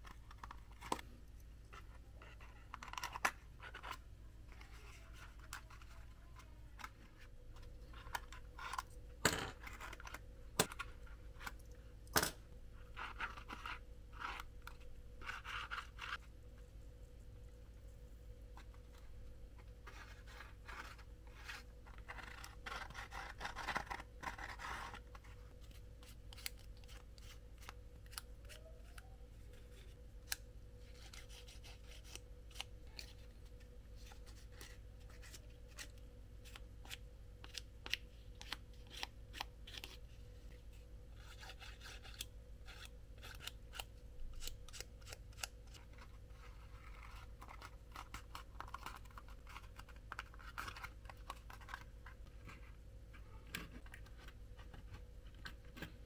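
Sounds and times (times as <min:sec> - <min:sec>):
low electrical hum: 0:00.0 - 0:56.0
scissors cutting cardboard: 0:21.9 - 0:25.1.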